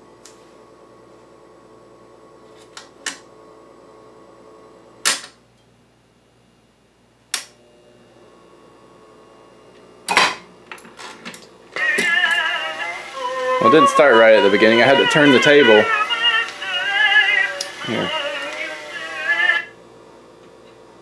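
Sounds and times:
steady hum: 11.3 - 20.4.

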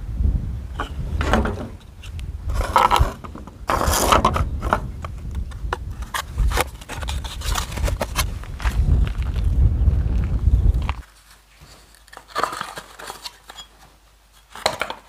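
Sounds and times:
hard plastic pieces scraping: 0.8 - 9.4, 11.7 - 15.0.

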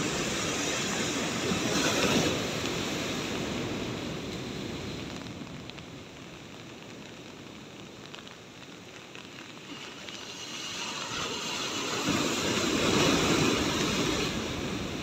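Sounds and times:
waves breaking on concrete: 0.0 - 5.5, 9.3 - 15.0.

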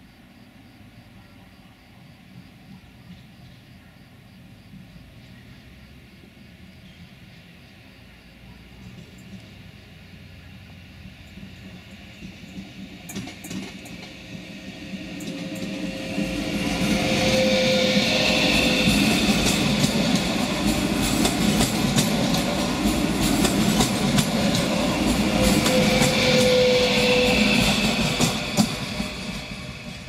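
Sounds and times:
electric train passing: 0.0 - 30.0
wheels clicking over rail joints: 11.2 - 15.9, 18.8 - 26.7.

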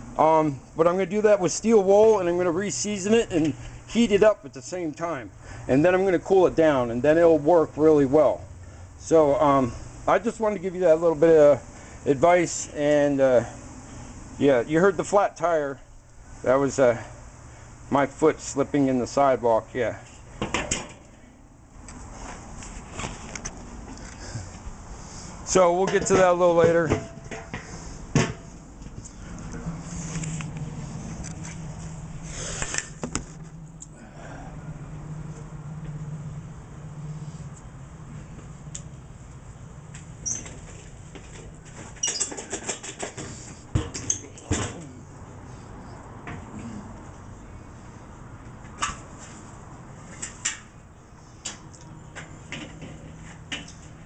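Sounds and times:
steady low hum: 0.0 - 42.0
grill grate clanking on metal: 20.4 - 21.1, 25.6 - 28.5.

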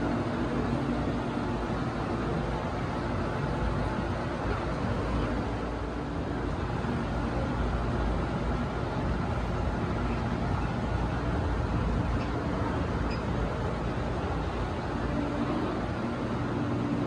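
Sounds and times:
faint hum: 0.0 - 17.0.

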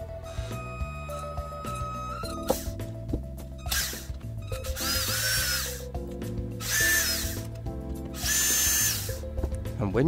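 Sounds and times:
cordless drill motor whine: 0.2 - 2.8, 3.6 - 6.0, 6.6 - 9.3.

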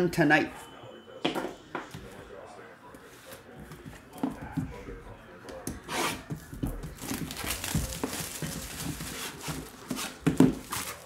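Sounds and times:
cardboard rubbing: 5.8 - 11.0
plastic wrap crinkling: 6.7 - 11.0.

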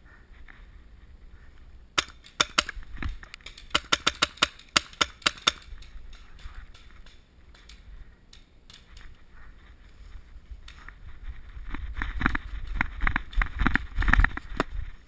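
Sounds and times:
wind noise: 2.6 - 3.4, 7.7 - 15.0.

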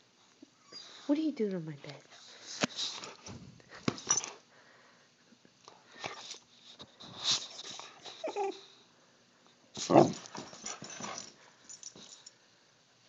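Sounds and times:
dog whining: 7.7 - 8.8
bedding rustling: 9.8 - 12.2.

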